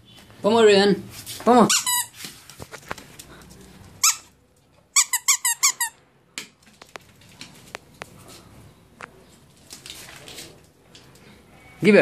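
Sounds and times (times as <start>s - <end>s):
squeaky dog toy squeaks: 1.6s - 2.2s, 4.0s - 6.0s.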